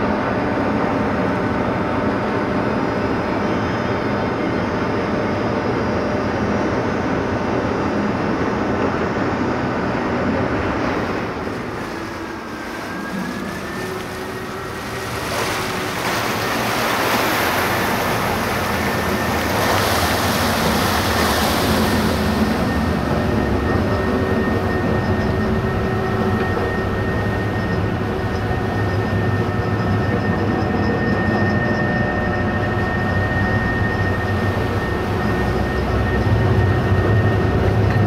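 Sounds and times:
ferry machinery low drone: 0.0 - 38.0
machinery high whine: 0.0 - 38.0
water splashing along hull: 8.6 - 38.0.

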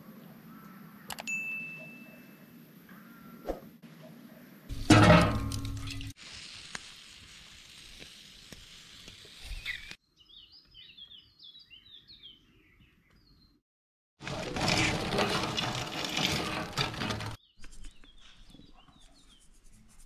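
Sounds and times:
sizzling hiss with crackles: 4.7 - 10.0
small birds chirping: 9.3 - 13.6, 17.4 - 19.8.

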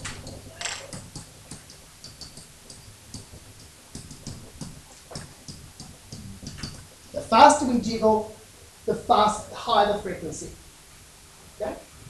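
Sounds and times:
stylus tapping on whiteboard: 0.9 - 6.8.

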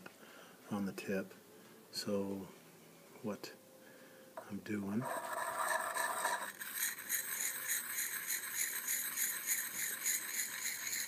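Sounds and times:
stone scraping on steel: 5.0 - 11.0.

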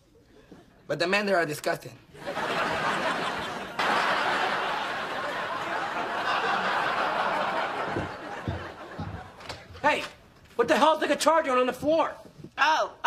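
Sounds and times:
studio audience laughing: 2.2 - 9.7.

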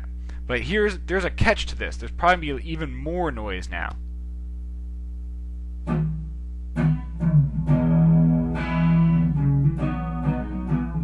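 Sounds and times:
low hum and noise: 0.0 - 11.0
plucked guitar notes: 5.8 - 11.0.

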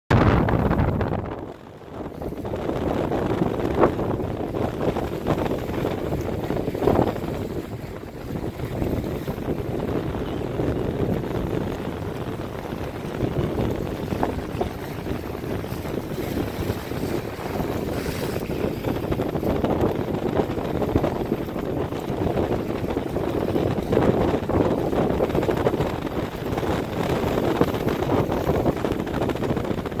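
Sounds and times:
wind buffeting microphone: 0.1 - 30.0
water washing against rocks: 10.9 - 29.6.

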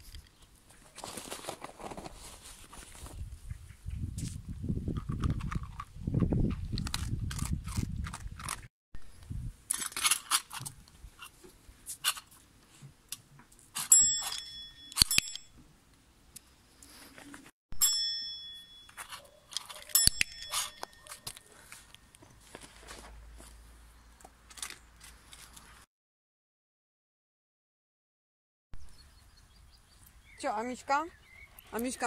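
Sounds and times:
rustling: 0.0 - 3.3, 18.9 - 23.6
metal desk service bell ringing: 13.9 - 15.5, 17.8 - 19.2, 19.9 - 21.1.

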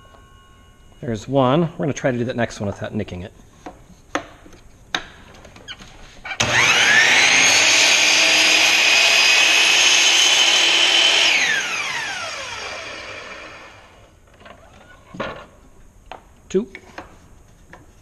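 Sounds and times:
saw blade cutting wood: 6.4 - 14.0
miter saw motor whining: 6.4 - 14.1.

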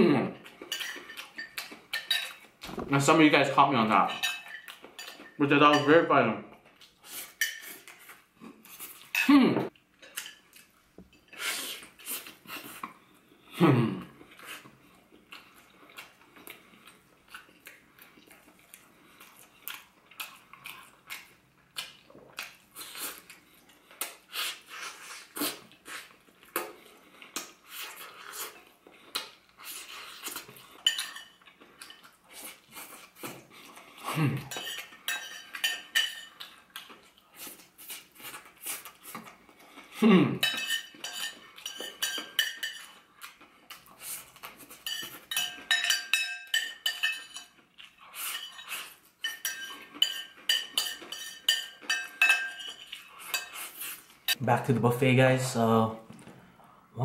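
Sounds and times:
chewing and mouth smacks: 14.3 - 35.7
fork clinking on plate: 34.5 - 36.5, 40.4 - 43.0, 44.7 - 47.6, 48.3 - 53.6.

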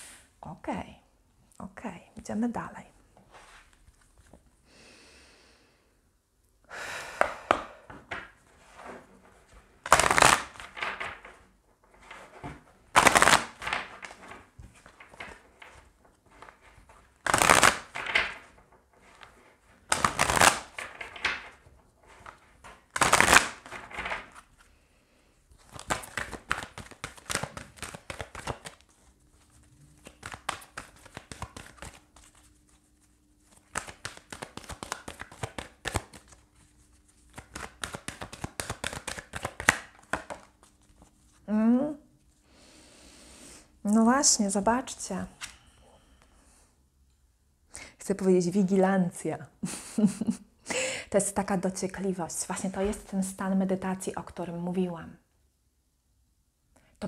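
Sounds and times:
cards riffle shuffling: 9.8 - 11.4, 12.0 - 24.7, 25.6 - 41.4.

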